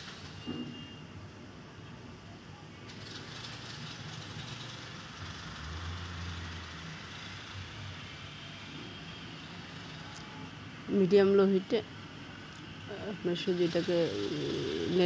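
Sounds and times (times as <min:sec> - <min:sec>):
low rushing background noise: 0:04.8 - 0:15.0.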